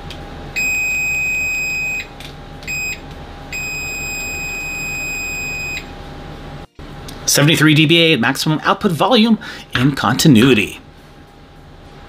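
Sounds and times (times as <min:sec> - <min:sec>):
high-pitched multimeter beep: 0:00.6 - 0:02.1, 0:02.7 - 0:05.9.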